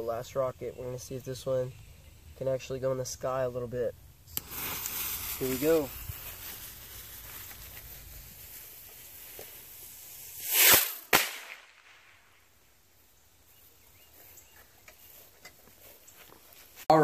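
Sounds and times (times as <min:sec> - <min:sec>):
rocket whoosh: 0:10.0 - 0:12.3.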